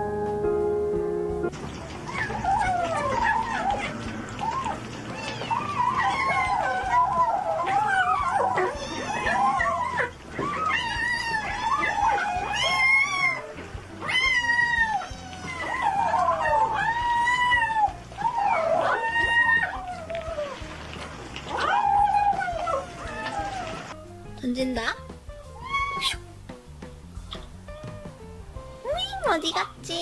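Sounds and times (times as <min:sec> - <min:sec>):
kittens mewing: 0:01.9 - 0:20.7, 0:21.4 - 0:24.0, 0:25.6 - 0:26.3.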